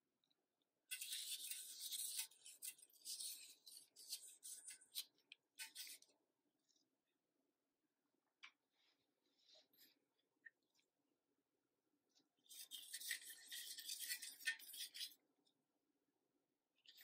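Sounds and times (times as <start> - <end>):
gloved hand rubbing and scraping: 0.9 - 6.2, 12.4 - 15.3.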